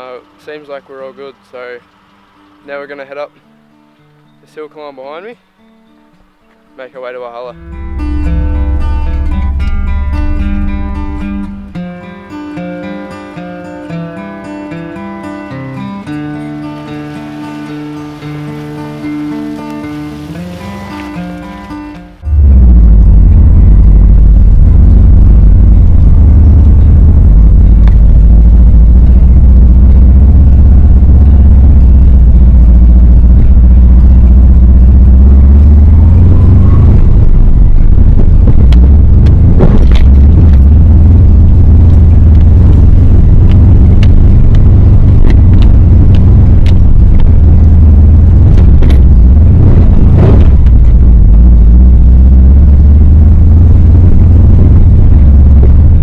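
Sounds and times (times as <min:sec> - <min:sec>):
car engine rumble from inside: 0:07.6 - 0:12.0, 0:18.0 - 0:56.0
knocks and clunks: 0:38.1 - 0:40.8, 0:48.5 - 0:51.1.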